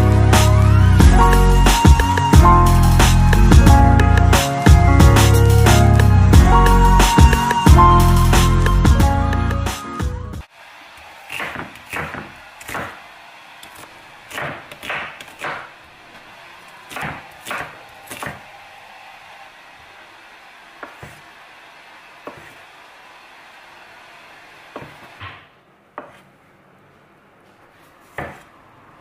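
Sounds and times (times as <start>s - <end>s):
knife striking wooden cutting board: 11.4s - 13.0s, 28.1s - 28.4s.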